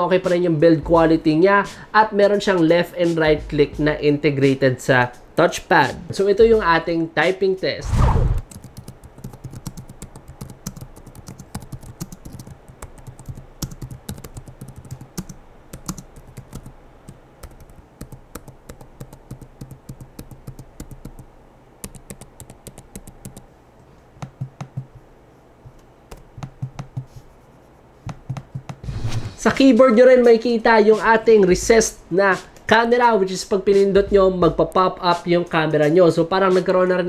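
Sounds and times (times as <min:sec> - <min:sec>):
laptop keyboard typing: 0:08.4 - 0:23.5, 0:24.2 - 0:25.1, 0:26.1 - 0:27.2, 0:28.0 - 0:28.8.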